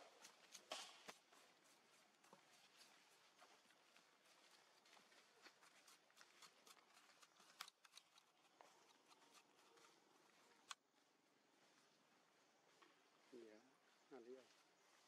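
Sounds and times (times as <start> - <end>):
rustling: 0.0 - 10.8.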